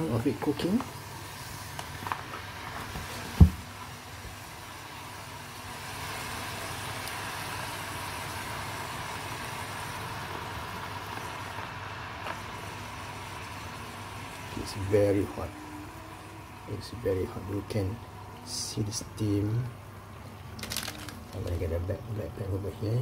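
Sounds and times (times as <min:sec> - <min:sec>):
thump: 0:03.4 - 0:03.6.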